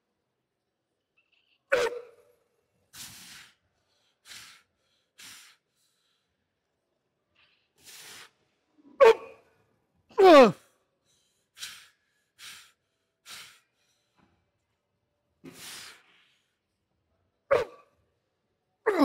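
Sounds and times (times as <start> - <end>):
man breathing hard: 2.9 - 6.8, 7.6 - 8.7, 10.4 - 14.7, 15.4 - 16.7
man grunting and groaning: 10.1 - 10.6.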